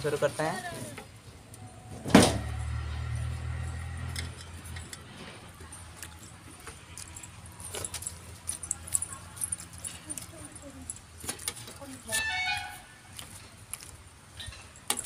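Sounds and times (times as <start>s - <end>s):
bangles and steel plates clinking: 2.5s - 12.2s, 14.3s - 15.0s.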